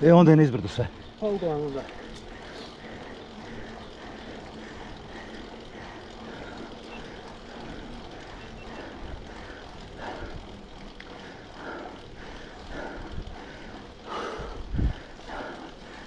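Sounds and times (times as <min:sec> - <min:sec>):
bike tyres on gravel: 0:00.0 - 0:16.0
rushing wind: 0:11.4 - 0:16.0.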